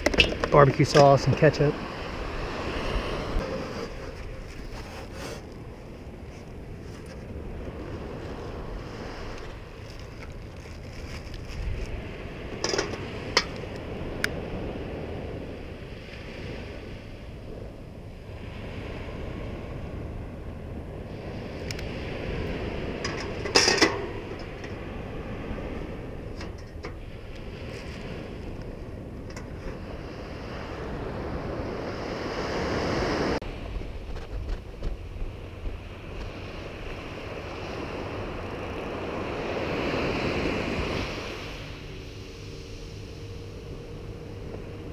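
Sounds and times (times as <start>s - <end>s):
ocean surf: 0.0s - 44.9s
wind on microphone: 0.0s - 44.9s
grill grate and lid clicks: 12.6s - 13.8s, 23.0s - 24.8s.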